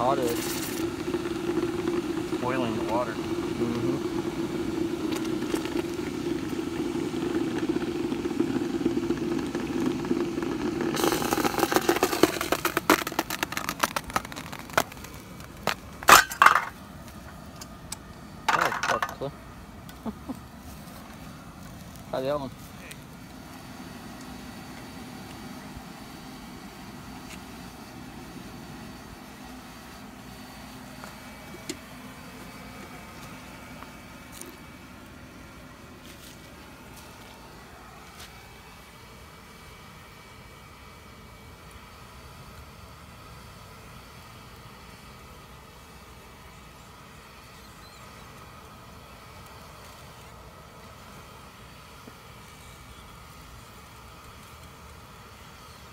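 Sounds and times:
hot metal sizzling in water: 0:00.0 - 0:16.7
low hum: 0:00.0 - 0:39.2
air blower whirring: 0:00.0 - 0:55.9
low boiling rumble: 0:00.0 - 0:55.9.

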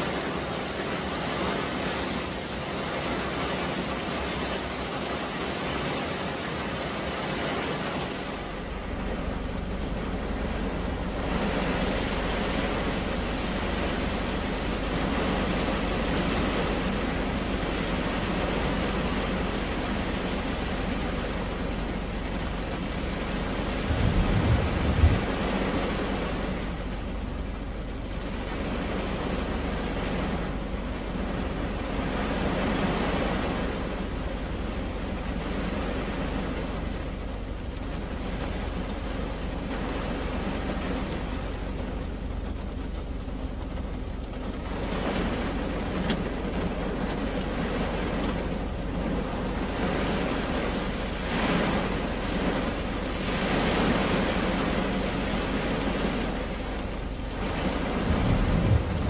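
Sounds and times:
rain on car roof and glass: 0:00.0 - 0:59.0
low rumble: 0:08.6 - 0:27.6, 0:56.7 - 0:59.0.

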